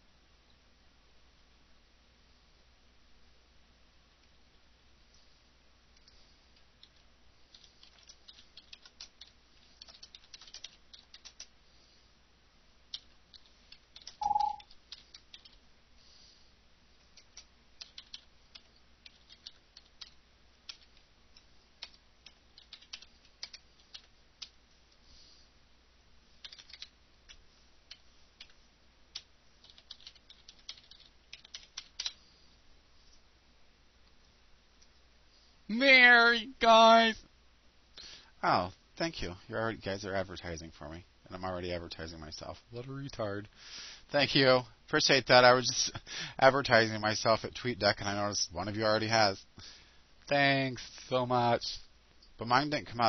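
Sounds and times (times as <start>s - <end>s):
computer keyboard typing: 6.8s - 11.5s, 12.9s - 15.6s, 17.1s - 24.6s, 26.4s - 32.2s
short tone: 14.2s - 14.6s.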